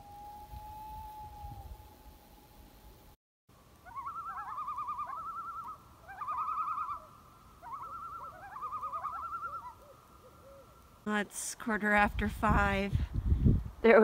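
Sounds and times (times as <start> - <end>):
loons tremolo call: 3.8 - 10.6.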